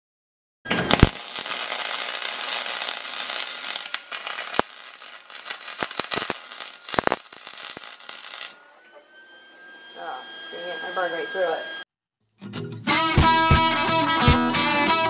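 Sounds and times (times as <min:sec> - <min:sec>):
welding arc crackling hiss: 0:00.7 - 0:08.7.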